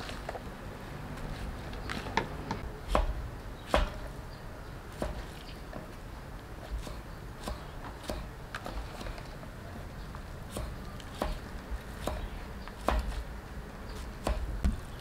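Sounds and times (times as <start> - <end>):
knife striking wooden board: 2.5 - 4.1, 5.0 - 5.3.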